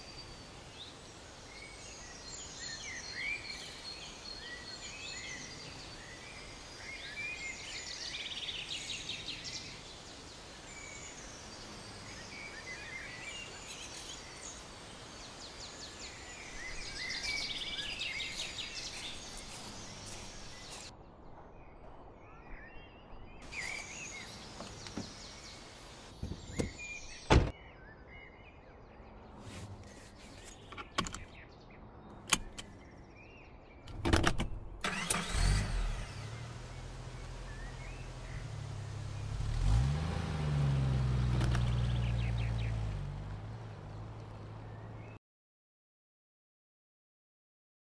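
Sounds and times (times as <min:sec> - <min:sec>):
birds singing: 0:00.0 - 0:34.0, 0:34.9 - 0:45.2
car door shutting: 0:26.2 - 0:27.5, 0:41.2 - 0:41.8
car engine starting: 0:33.9 - 0:45.1.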